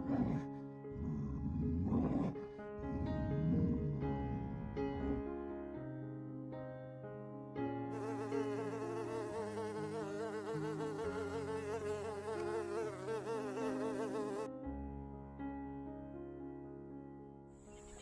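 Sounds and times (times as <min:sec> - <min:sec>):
soft background music: 0:00.0 - 0:18.0
bee buzzing: 0:08.0 - 0:14.5.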